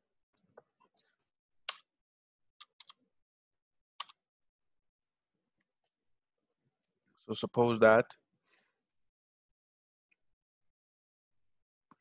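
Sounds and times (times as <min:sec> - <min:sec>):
keyboard and mouse clicks: 0:02.6 - 0:03.0, 0:04.0 - 0:04.2.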